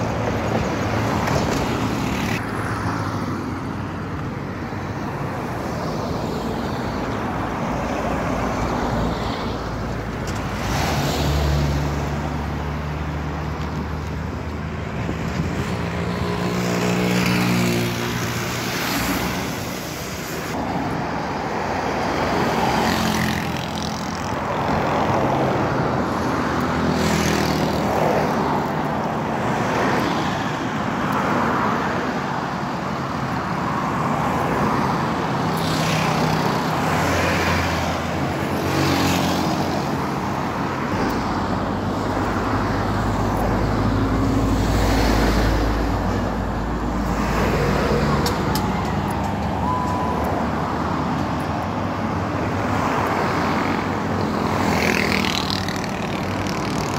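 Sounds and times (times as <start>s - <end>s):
cars and vans passing: 0.0s - 56.9s.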